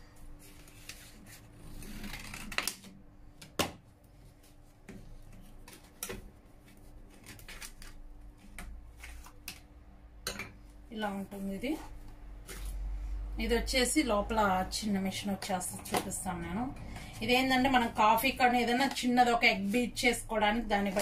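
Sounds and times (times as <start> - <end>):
cardboard packaging rustling: 6.6 - 9.4.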